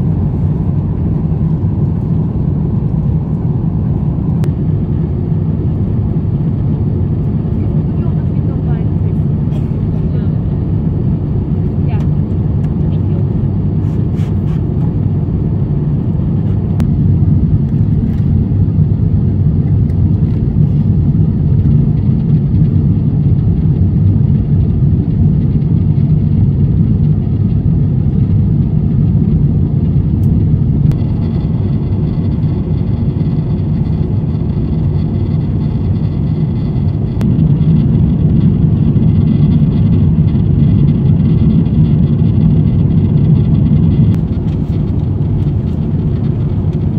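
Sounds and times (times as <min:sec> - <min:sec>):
airliner cabin engine rumble: 0:00.0 - 0:46.9.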